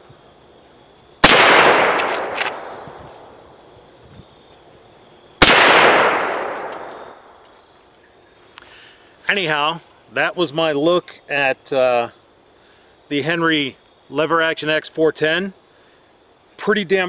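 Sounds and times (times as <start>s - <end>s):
shotgun shots with echo: 1.2s - 3.0s, 5.4s - 7.3s.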